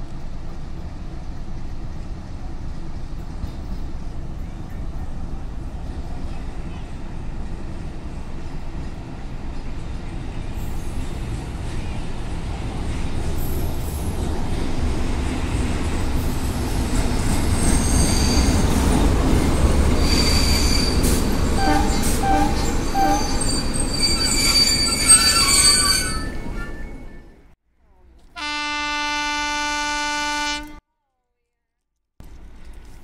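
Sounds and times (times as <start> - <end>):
locomotive engine rumbling: 0.1 - 30.8
wheels and brakes squealing: 16.2 - 27.4.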